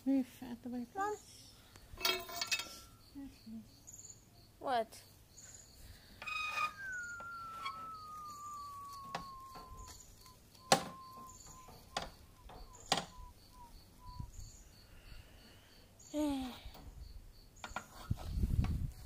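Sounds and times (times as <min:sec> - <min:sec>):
crickets chirping: 0:01.0 - 0:19.0
burning wood whistling: 0:06.2 - 0:15.1.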